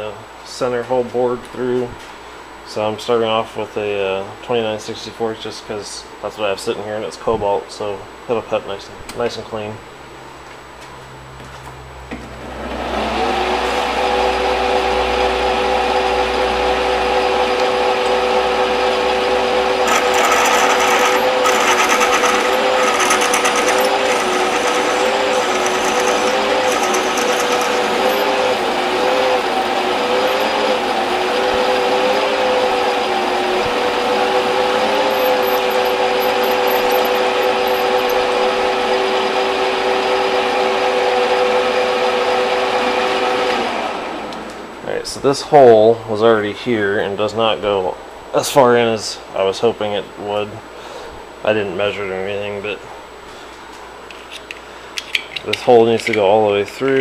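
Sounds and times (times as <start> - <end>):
lathe drilling metal whine: 19.2 - 38.4.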